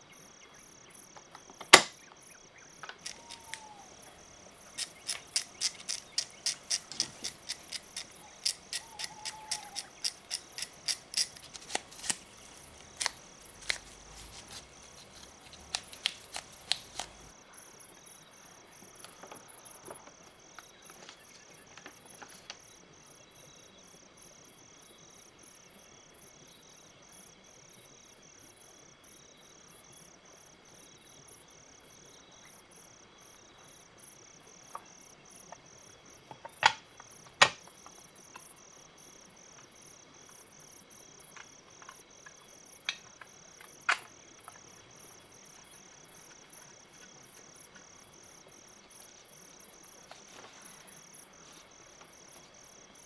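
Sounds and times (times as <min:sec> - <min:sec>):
sharp clicks of metal toy parts: 0:02.9 - 0:03.8, 0:04.7 - 0:17.3.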